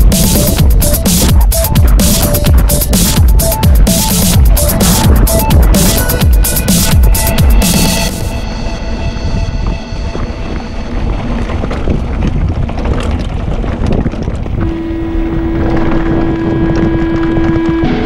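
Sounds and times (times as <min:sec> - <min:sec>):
steady held tone: 0:00.0 - 0:11.6, 0:14.6 - 0:18.0
wind rumbling on microphone: 0:00.0 - 0:18.0
bike rattling over stones: 0:10.9 - 0:14.6.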